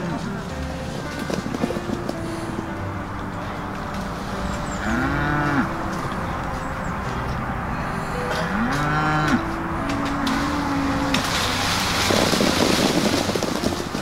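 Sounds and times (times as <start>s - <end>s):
cattle mooing: 4.8s - 5.8s, 8.2s - 11.2s.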